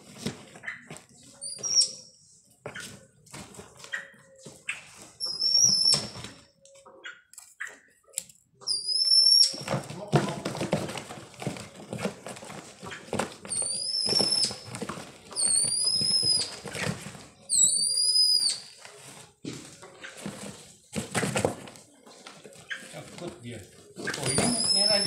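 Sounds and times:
cardboard box rustling: 9.6s - 15.3s.

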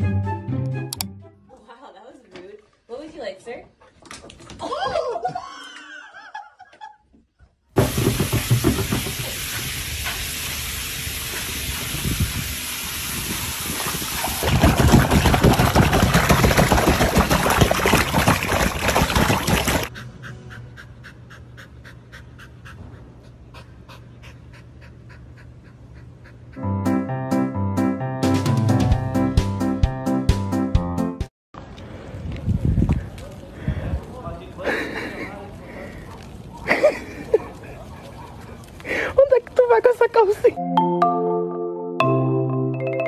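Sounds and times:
water splashing and rushing: 7.8s - 19.9s
dog panting: 19.9s - 26.7s.

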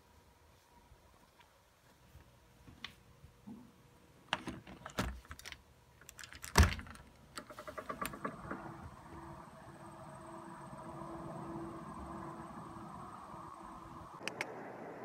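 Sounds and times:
door handle and latch rattling: 4.4s - 8.6s.

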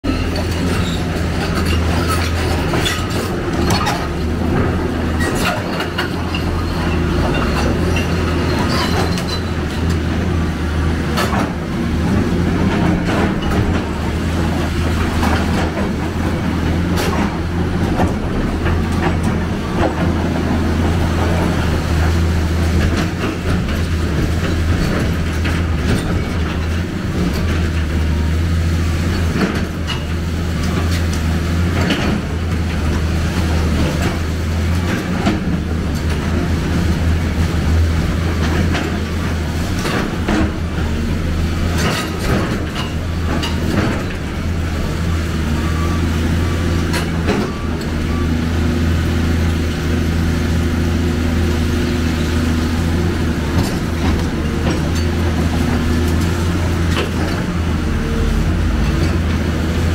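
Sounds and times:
excavator diesel engine humming: 0.1s - 59.9s
metal and rubble clanking: 0.1s - 59.9s.

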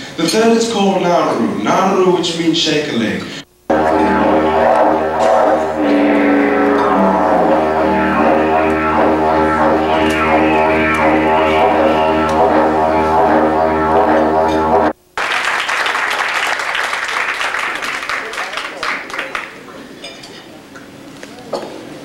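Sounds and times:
didgeridoo drone: 3.7s - 15.0s.

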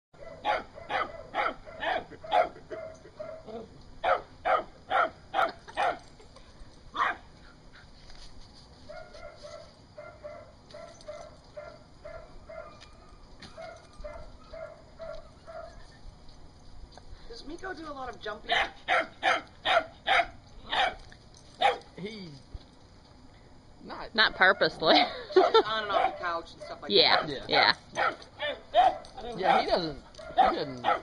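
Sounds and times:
dog yipping: 0.2s - 6.0s, 18.5s - 21.0s, 21.6s - 21.9s, 25.9s - 31.0s
dogs barking: 0.2s - 6.1s, 7.0s - 7.3s, 8.8s - 15.8s, 18.4s - 22.0s, 25.4s - 31.0s.

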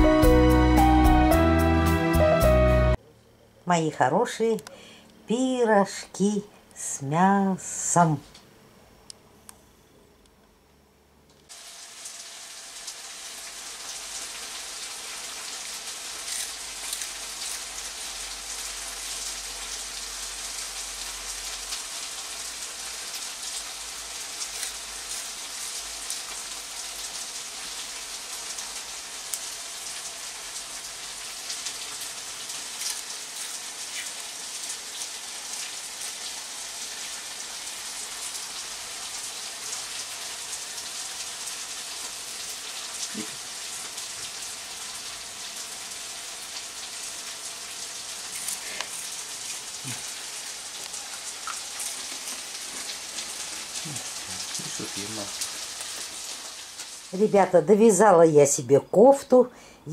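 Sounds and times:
steady rain-like hiss: 0.0s - 3.0s, 3.7s - 59.9s
faint crackles and ticks: 29.3s - 29.6s, 31.4s - 36.2s, 50.8s - 57.0s.

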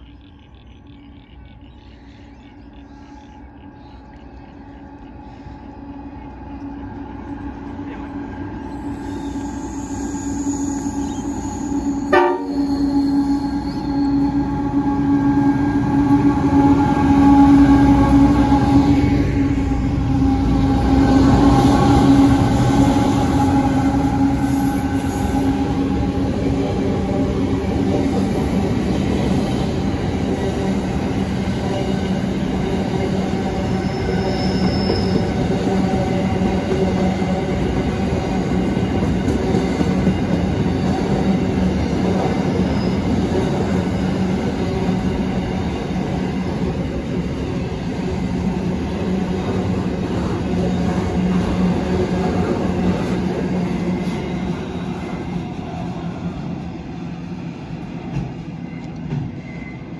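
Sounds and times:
train rumbling past on rails: 0.0s - 59.9s
wheel squeal: 12.5s - 14.4s, 33.8s - 35.3s.

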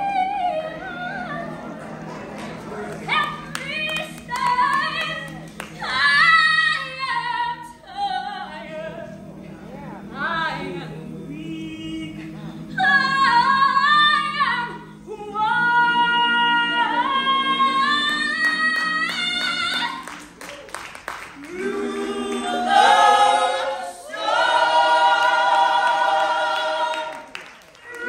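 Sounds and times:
vocal group singing a cappella: 10.1s - 20.4s, 21.3s - 28.0s.

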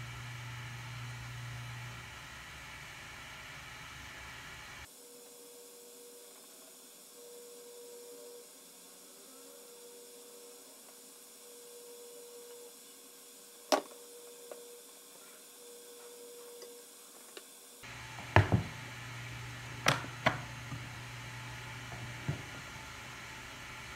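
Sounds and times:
faint electrical hum: 0.0s - 23.9s
thin steady tone: 4.8s - 17.2s.

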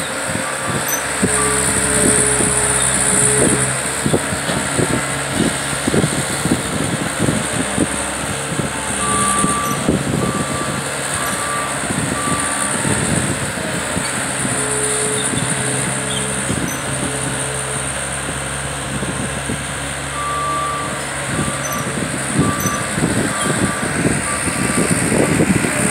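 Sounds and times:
tracks and bucket clanking: 0.0s - 19.2s
diesel engine running: 0.0s - 25.9s
backup alarm beeping: 0.5s - 5.3s, 7.4s - 13.1s, 20.2s - 25.0s.

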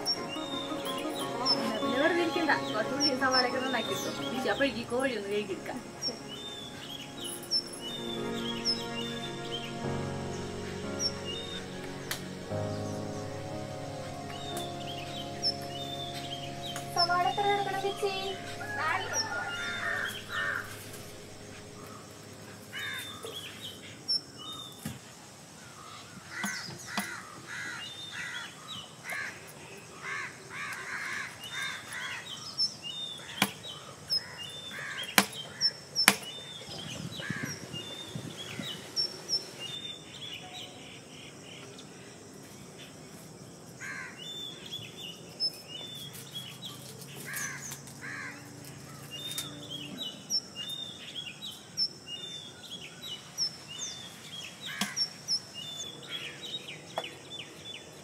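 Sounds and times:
small birds chirping: 0.0s - 43.4s, 44.0s - 58.0s
crows cawing: 18.6s - 20.9s, 22.7s - 23.5s, 25.8s - 32.4s, 33.2s - 35.7s, 43.8s - 44.2s, 47.2s - 49.1s.

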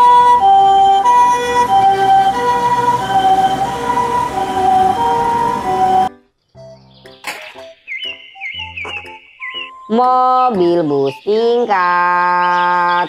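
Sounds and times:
two-tone ambulance siren: 0.0s - 6.2s.

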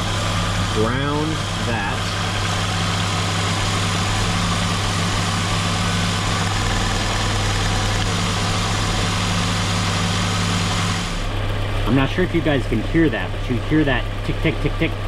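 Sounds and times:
car engine idling with misfire: 0.0s - 15.0s.

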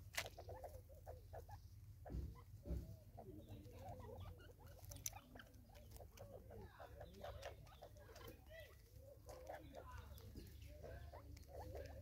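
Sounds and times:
thumps: 2.0s - 3.2s.

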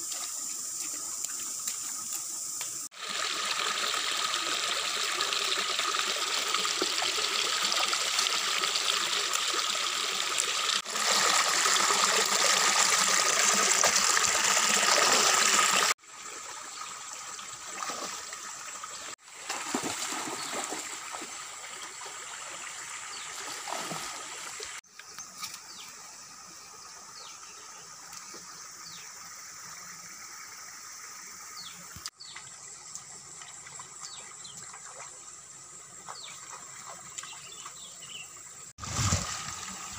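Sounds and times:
stream running over rocks: 0.0s - 27.2s, 38.8s - 39.9s.

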